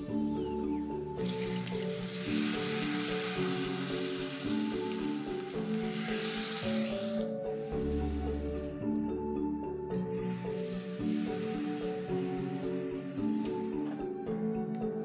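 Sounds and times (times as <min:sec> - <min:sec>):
background music: 0:00.0 - 0:15.0
batter sizzling in hot oil: 0:01.2 - 0:07.4, 0:10.6 - 0:12.5.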